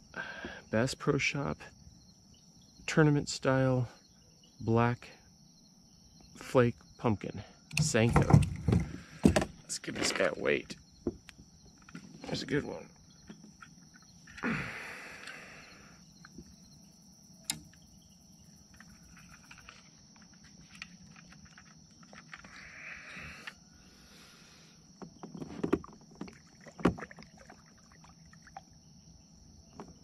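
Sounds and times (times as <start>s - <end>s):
crickets chirping: 0.0s - 30.0s
knocks and clicks of gear: 7.7s - 9.6s, 17.4s - 17.9s.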